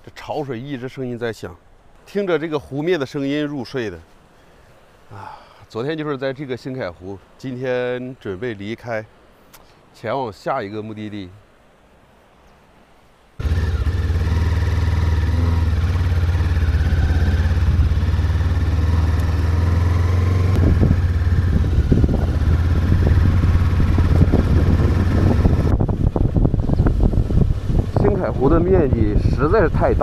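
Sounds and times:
motorcycle engine running: 13.4s - 25.8s.

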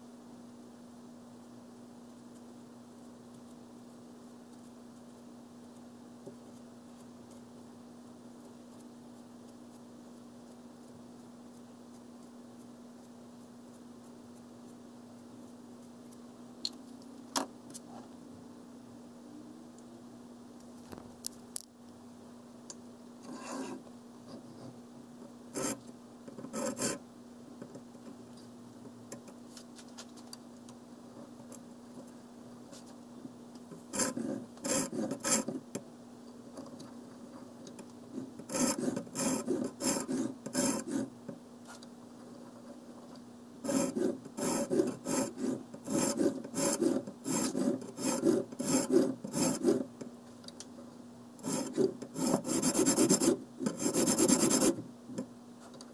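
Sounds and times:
sharpening rod rasping on knife: 43.7s - 49.8s, 51.4s - 54.7s.

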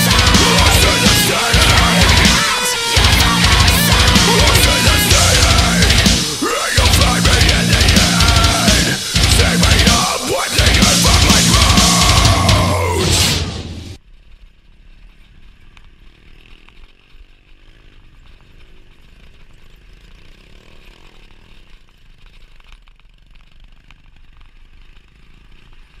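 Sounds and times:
small engine buzzing: 0.0s - 13.0s, 14.0s - 26.0s
heavy rock music: 0.0s - 14.0s.

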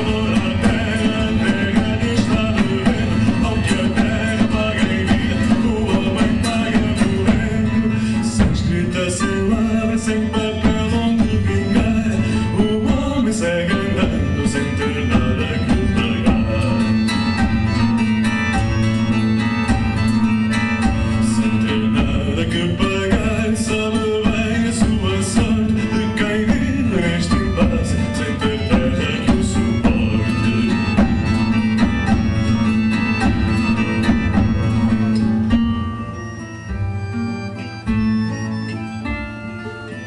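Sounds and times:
drum kit steady beat: 0.0s - 37.2s
plucked acoustic guitars: 0.0s - 40.0s.

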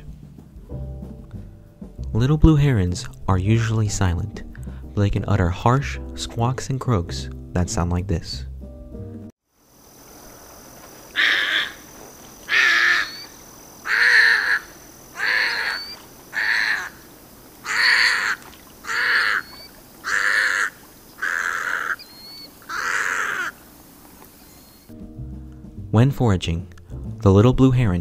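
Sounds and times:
heron giving harsh squawks: 11.2s - 11.9s, 12.5s - 23.6s.

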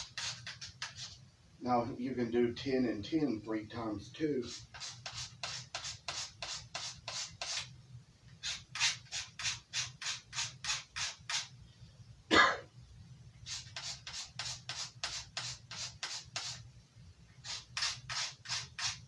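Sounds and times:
knife scraping on sharpener: 0.0s - 1.2s, 4.4s - 7.7s, 8.4s - 11.5s, 13.5s - 16.6s, 17.4s - 19.0s
low steady hum: 11.5s - 14.2s, 16.5s - 17.5s.

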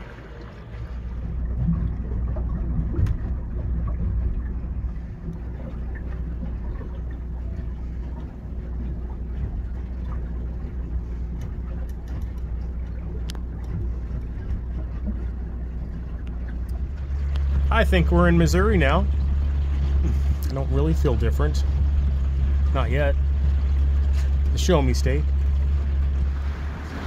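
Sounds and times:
boat motor droning: 0.0s - 27.0s
faint clicks: 11.3s - 15.4s.

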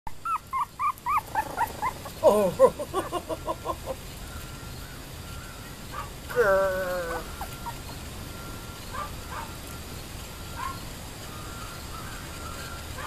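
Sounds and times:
puppy whining: 0.1s - 3.7s, 6.3s - 8.0s
puppies whimpering and yipping: 0.1s - 4.0s, 6.9s - 9.6s.

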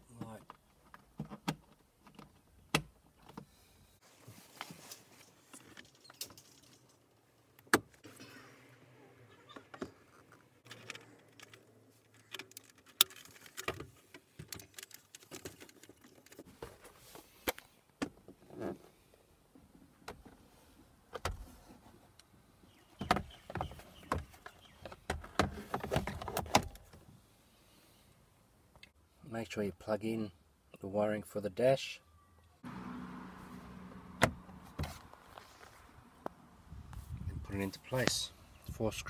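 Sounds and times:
plastic parts clicking and scraping: 9.6s - 17.7s.

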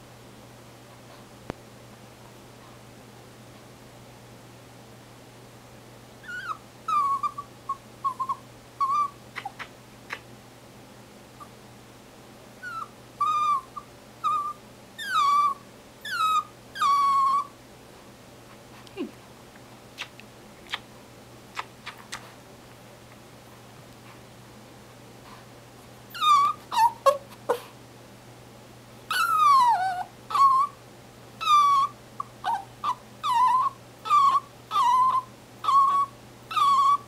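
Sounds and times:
dog whining: 6.2s - 9.7s, 12.6s - 17.6s, 26.1s - 27.7s, 29.1s - 30.8s, 31.4s - 37.0s.

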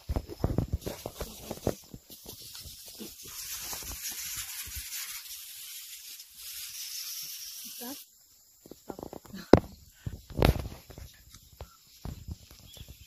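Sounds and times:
knocks and rustles: 0.0s - 5.2s, 8.6s - 13.0s
sprayer nozzle hissing: 0.8s - 8.1s.

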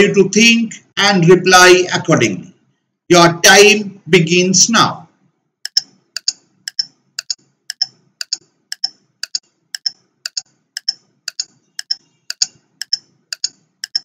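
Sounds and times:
clock ticking: 5.7s - 14.0s.

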